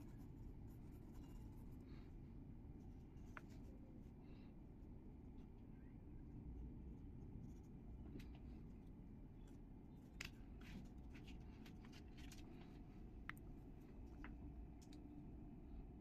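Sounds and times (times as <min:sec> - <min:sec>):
small clicks and taps: 0:09.4 - 0:15.1.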